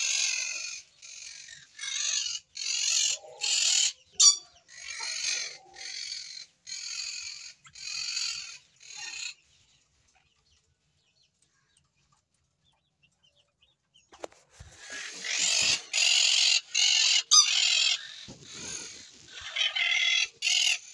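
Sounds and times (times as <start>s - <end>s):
bird chick begging calls: 14.8s - 20.9s.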